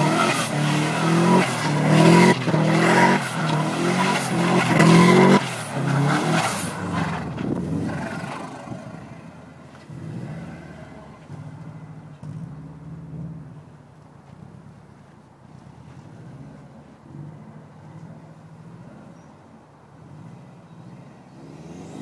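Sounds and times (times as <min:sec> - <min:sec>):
car engine revving hard: 0:00.0 - 0:13.6, 0:21.3 - 0:22.0.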